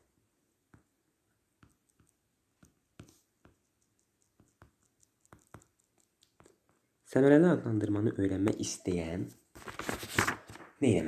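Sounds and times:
stylus tapping tablet screen: 0.0 - 7.0.

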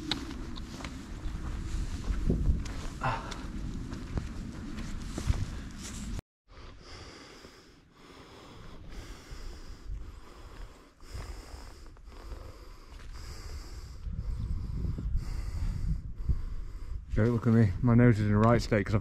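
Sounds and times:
wind on microphone: 0.0 - 6.2, 8.9 - 19.0
person breathing through nose: 6.5 - 17.1.

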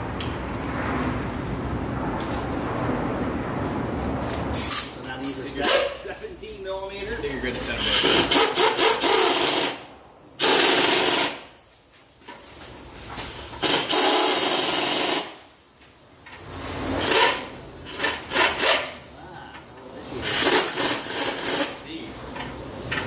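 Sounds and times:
air-powered wrench bursts: 4.5 - 6.0, 7.6 - 11.6, 13.0 - 15.5, 16.2 - 19.2, 20.0 - 23.0.

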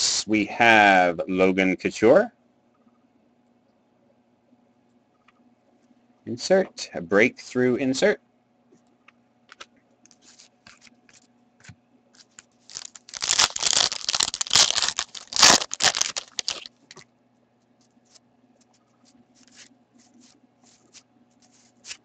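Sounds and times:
card pack wrapper tearing: 12.2 - 17.0.

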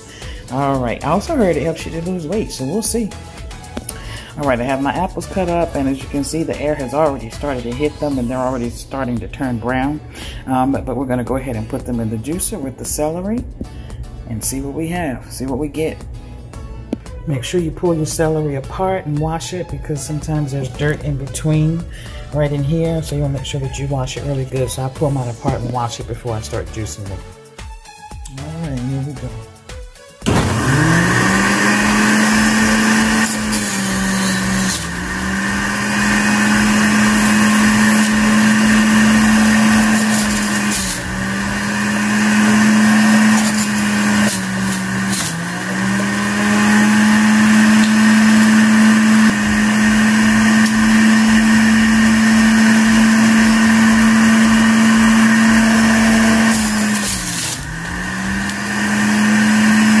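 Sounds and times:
juicer motor whining: 0.0 - 8.7, 30.2 - 60.0.

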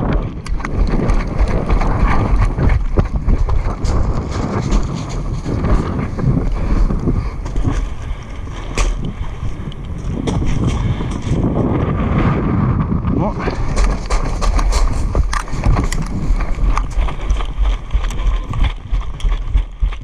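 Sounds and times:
footsteps and gear knocking: 0.0 - 11.9, 13.4 - 20.0
wind rumbling on microphone: 0.0 - 20.0.

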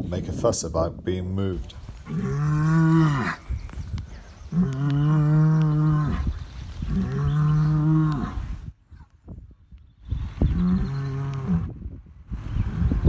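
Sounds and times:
bull bellowing: 2.0 - 3.4, 6.9 - 8.4.

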